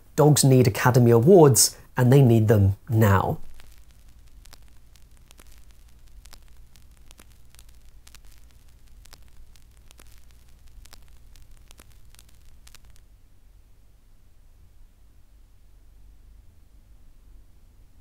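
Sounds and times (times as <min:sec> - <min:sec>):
faint film hiss: 0:00.0 - 0:18.0
steady low hum: 0:00.0 - 0:18.0
crackling clicks: 0:02.8 - 0:13.3.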